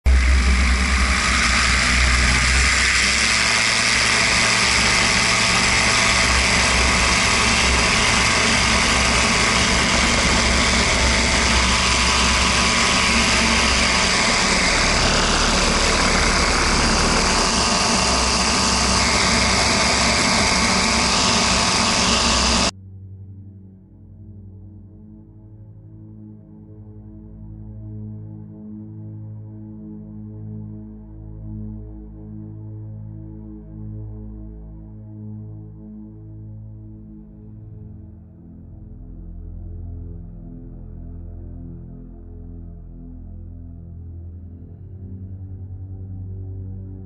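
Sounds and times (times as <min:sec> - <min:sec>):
light aircraft engine and propeller: 0:00.1 - 0:22.7.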